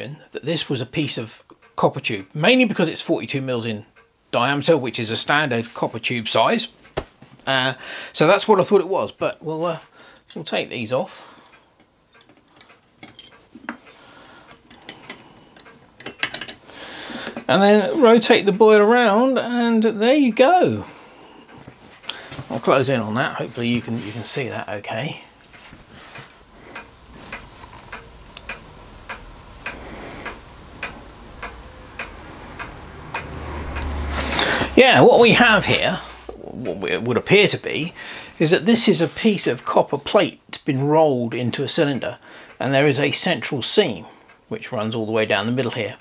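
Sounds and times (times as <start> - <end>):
clock ticking: 1.3 - 9.5, 17.0 - 46.0
light metal clicks and clinks: 11.8 - 13.9
metal taps: 11.8 - 13.9.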